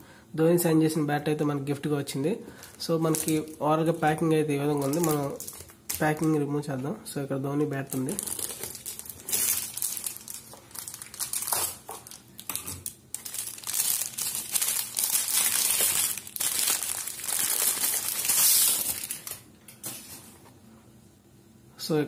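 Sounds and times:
plastic wrap crinkling: 2.6 - 6.5, 7.7 - 20.3.

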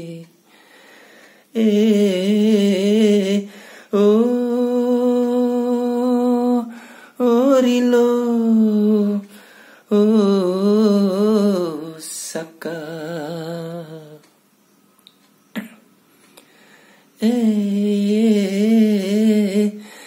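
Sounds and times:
man singing unaccompanied: 0.0 - 14.4, 17.2 - 20.0
breath: 0.5 - 1.5, 3.5 - 3.9, 6.7 - 7.2, 9.3 - 9.9, 16.2 - 17.1, 19.8 - 20.0.

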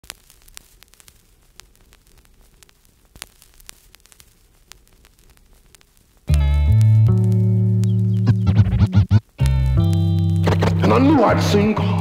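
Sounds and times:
vinyl clicks and pops: 0.0 - 12.0
vinyl record hiss: 0.0 - 12.0
low hum: 6.3 - 10.8.

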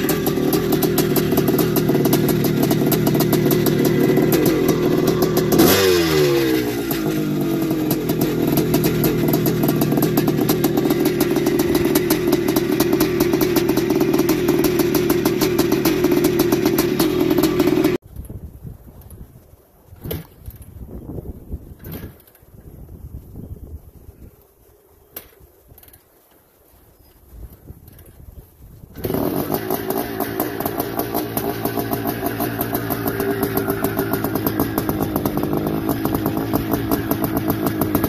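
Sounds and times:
two-stroke engine running: 0.0 - 18.0, 29.0 - 38.0.

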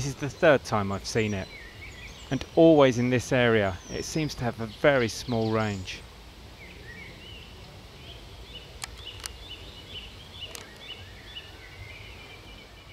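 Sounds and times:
birds chirping: 0.0 - 12.9
sharp clicks: 8.8 - 9.4, 10.4 - 10.9.

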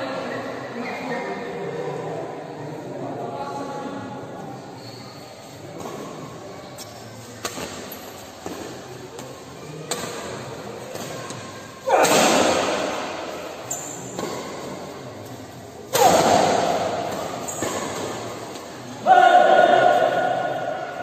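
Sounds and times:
spectators shouting: 19.0 - 21.0.

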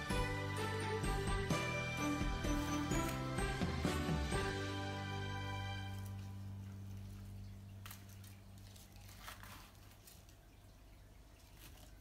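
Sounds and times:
soft background music: 0.0 - 9.5
rustling of pine branches: 5.8 - 10.6, 11.3 - 12.0.

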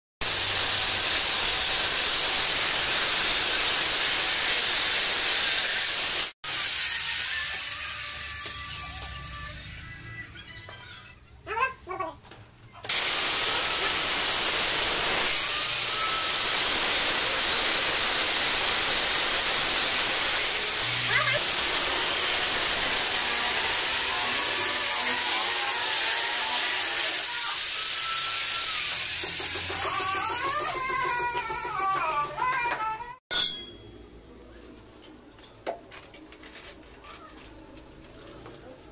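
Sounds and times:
angle grinder cutting stone: 0.2 - 10.2, 12.9 - 32.5.

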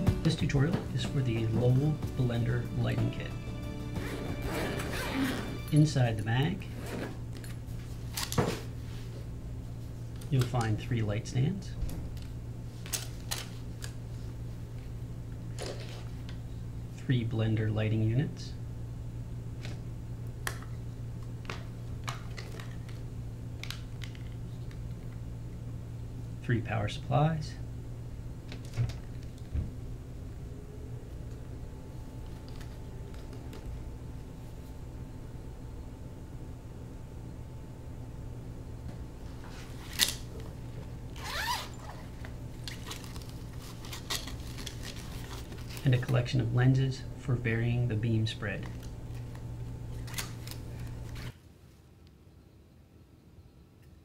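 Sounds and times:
steady low hum: 0.0 - 54.0
zipper pull: 4.0 - 5.7, 41.2 - 42.1
cable pulled from nylon bag: 41.2 - 42.1.

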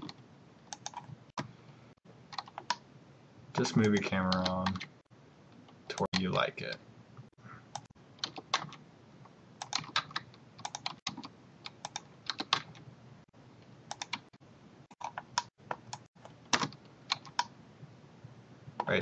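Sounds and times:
keyboard keys clicking: 0.0 - 1.5, 2.3 - 2.8, 3.6 - 4.9, 7.8 - 8.8, 9.6 - 12.8, 13.9 - 14.3, 14.9 - 17.5.

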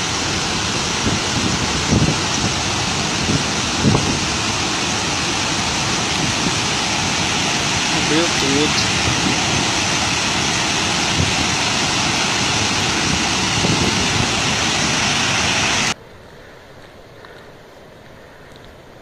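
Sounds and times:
floodwater rushing down spillway: 0.0 - 16.0
faint outdoor background: 15.8 - 19.0.

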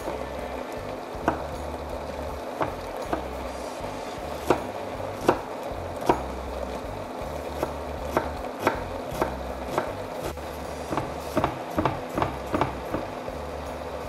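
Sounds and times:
low hum: 0.0 - 11.7
steady hiss: 0.0 - 14.0
knife chopping on wooden board: 1.2 - 1.6, 2.6 - 3.4, 4.4 - 6.3, 7.6 - 13.1.

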